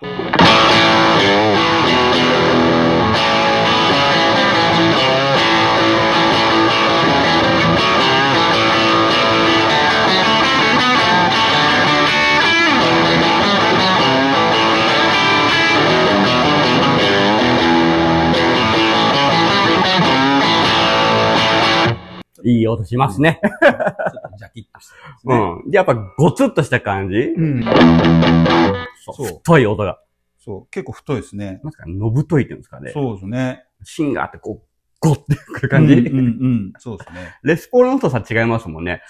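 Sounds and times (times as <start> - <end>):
electric guitar riff: 0.0 - 22.2, 27.2 - 29.0, 35.7 - 36.3.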